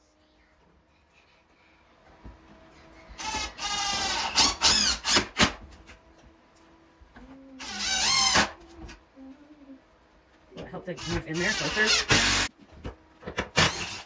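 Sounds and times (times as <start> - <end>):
power drill motor whine: 3.2 - 5.2, 11.0 - 12.5, 13.6 - 14.0.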